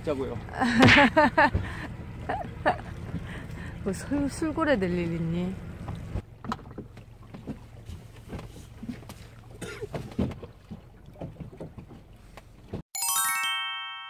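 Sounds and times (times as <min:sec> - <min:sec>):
knocks and clatter on boat: 0:00.0 - 0:12.8
rising chiming sound effect: 0:13.0 - 0:14.0.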